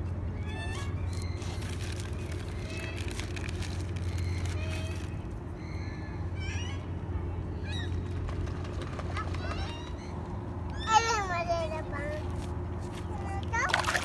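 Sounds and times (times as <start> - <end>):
steady low hum: 0.0 - 14.0
high bird chirps and calls: 0.3 - 3.2, 4.0 - 8.0.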